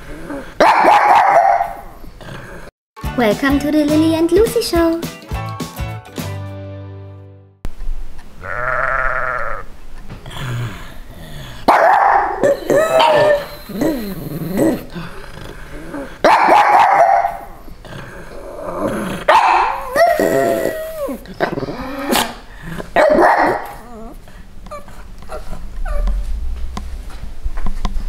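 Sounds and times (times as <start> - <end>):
dog barking and howling: 0.6 - 1.9, 11.7 - 14.8, 16.2 - 17.5, 19.3 - 21.2, 23.0 - 24.2
sheep bleating: 8.4 - 9.7.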